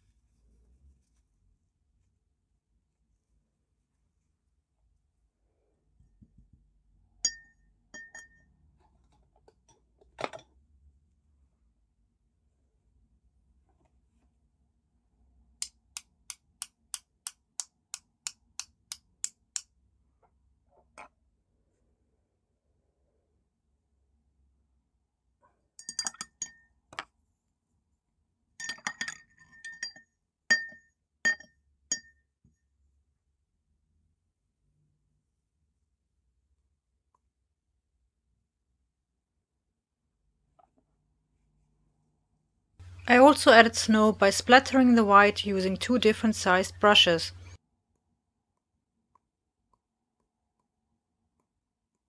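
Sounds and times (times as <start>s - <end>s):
paintbrush tapping a glass: 7.2s - 8.5s, 25.8s - 26.7s, 28.6s - 32.2s
light clinks on glass jar: 25.8s - 26.6s, 28.6s - 32.1s.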